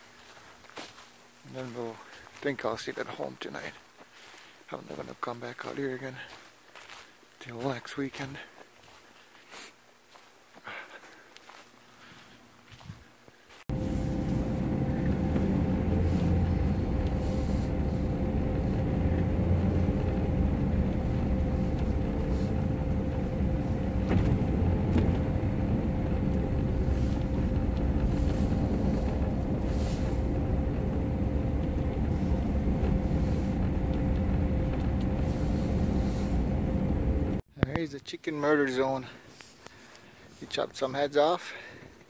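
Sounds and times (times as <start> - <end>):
constant hum: 0.0 - 37.8
truck engine and tyres rumbling: 13.7 - 37.4.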